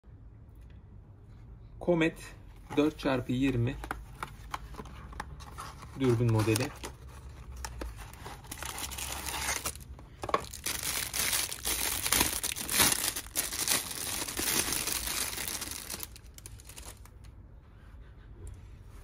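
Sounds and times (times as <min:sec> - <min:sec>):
plastic bag crinkling: 0:06.0 - 0:17.3.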